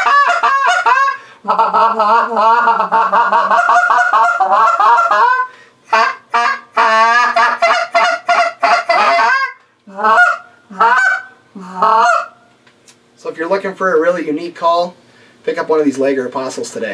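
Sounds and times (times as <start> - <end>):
goose call honks and clucks: 0.0 - 12.4.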